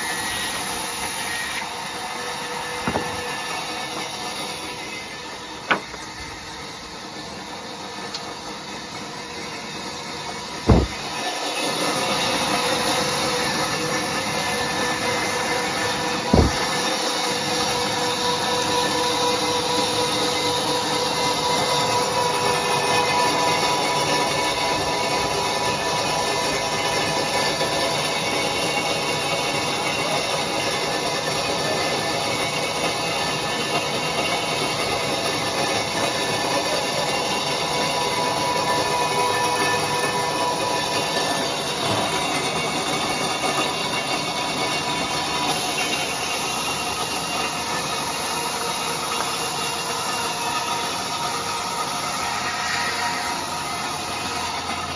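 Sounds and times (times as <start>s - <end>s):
sawmill machinery running: 0.0s - 54.9s
wooden board knocking on boards: 2.8s - 3.3s, 5.7s - 6.1s, 10.7s - 11.0s, 16.3s - 16.7s.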